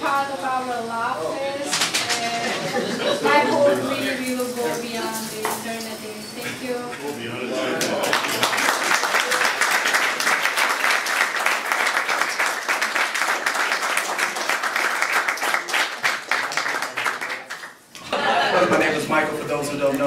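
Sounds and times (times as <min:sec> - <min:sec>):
people applauding: 0:07.8 - 0:17.8.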